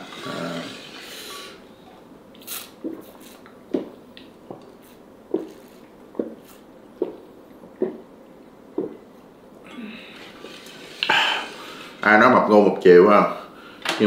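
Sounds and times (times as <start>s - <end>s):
slurp: 2.4s - 3.9s.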